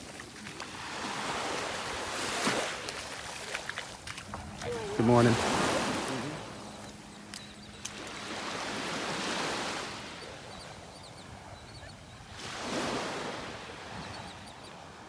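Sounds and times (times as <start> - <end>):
small waves washing onto beach: 0.0 - 11.5, 12.2 - 15.0
faint high bird chirps: 6.4 - 8.1.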